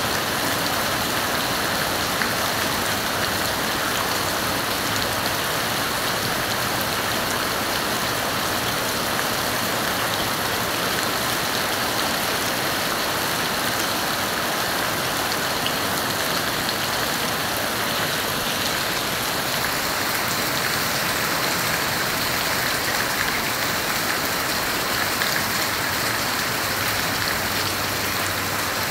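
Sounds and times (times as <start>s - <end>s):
rain splashing on water: 0.0s - 28.9s.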